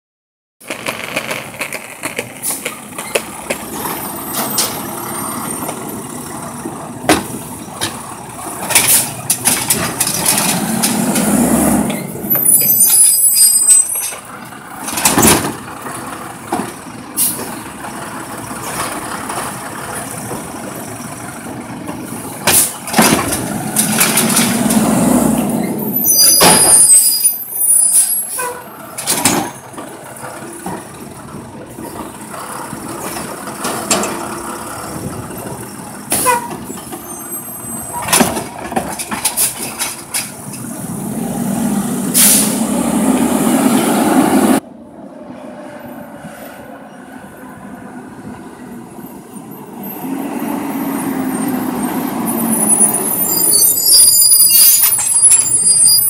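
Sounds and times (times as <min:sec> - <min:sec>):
garbage truck engine and hydraulics: 0:00.6 - 0:56.0
short high squeals: 0:11.9 - 0:14.2, 0:25.6 - 0:28.7, 0:52.5 - 0:56.0
carts banging: 0:21.8 - 0:27.0.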